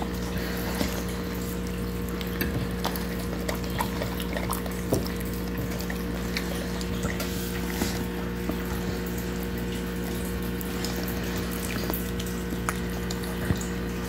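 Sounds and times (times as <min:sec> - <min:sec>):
dog licking and chewing: 0:00.4 - 0:08.9.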